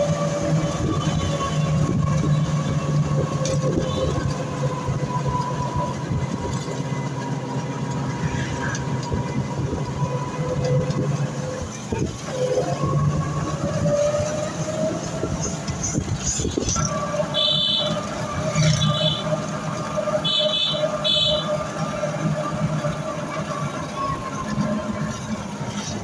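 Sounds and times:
vehicle engine and road rumble: 0:00.0 - 0:26.0.

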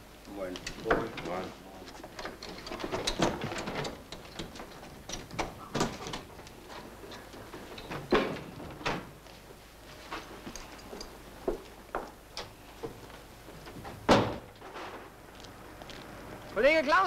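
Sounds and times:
knocks and clatter: 0:02.0 - 0:09.2
door banging: 0:13.9 - 0:15.1.

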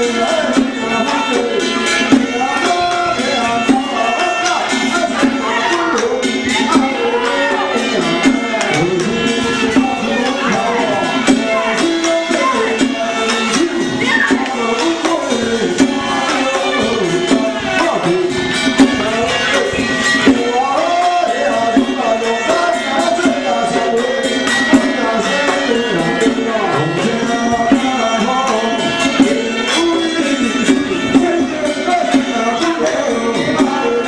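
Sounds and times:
sharp percussion strikes: 0:00.0 - 0:34.0
wavering folk melody: 0:00.0 - 0:34.0.

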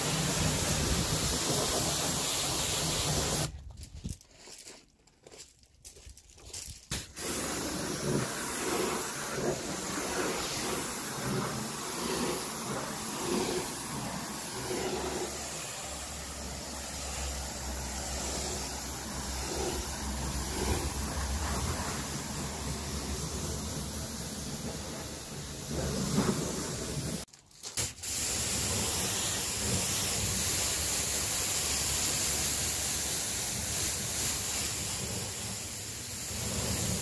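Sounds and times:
pressure washer jet hissing: 0:00.0 - 0:03.5, 0:06.9 - 0:37.0
water spattering onto gravel: 0:05.7 - 0:23.6, 0:25.9 - 0:37.0.

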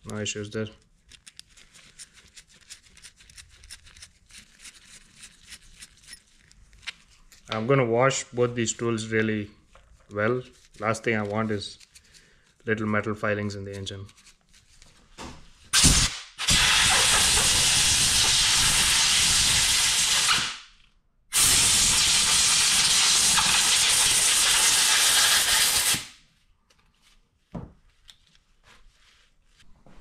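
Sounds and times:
compressed air blow gun blasting: 0:15.8 - 0:20.6, 0:21.3 - 0:26.1.

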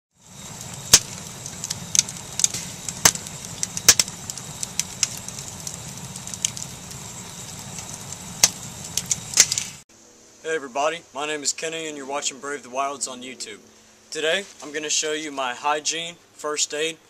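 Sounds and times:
low rush of flames: 0:00.1 - 0:09.8
wood fire crackling: 0:00.1 - 0:09.9.

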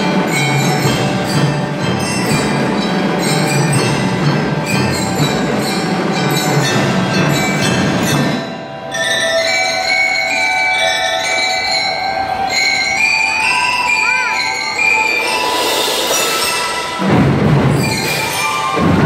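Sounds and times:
bell lyres ringing: 0:00.0 - 0:19.0.

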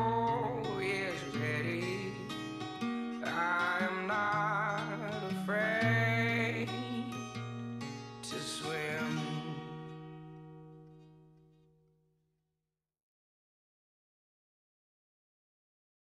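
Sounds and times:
man singing country song: 0:00.0 - 0:10.2
guitar accompaniment: 0:00.0 - 0:11.8.

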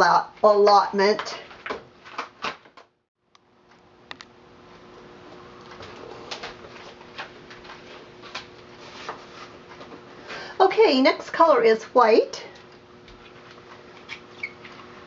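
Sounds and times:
steady low hum: 0:03.2 - 0:15.0.

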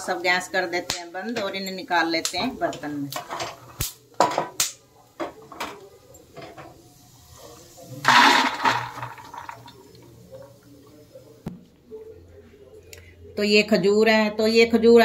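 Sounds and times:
nuts poured into steel bowl: 0:08.0 - 0:09.6.

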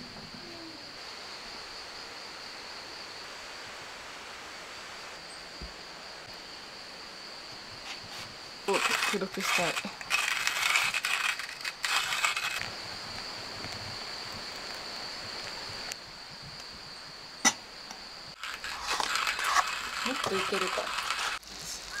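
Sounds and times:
hot water pouring hiss: 0:07.8 - 0:17.2, 0:18.3 - 0:22.0
hand-cranked coffee grinder: 0:08.7 - 0:12.7, 0:18.4 - 0:21.4.

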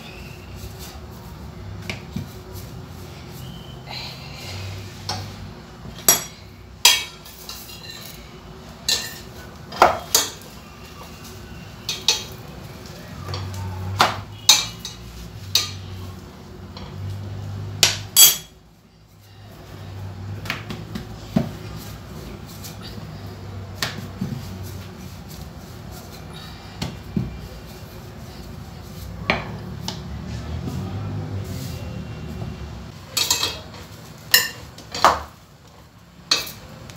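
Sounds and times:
metal spoon clinking on frying pan: 0:18.2 - 0:18.5.

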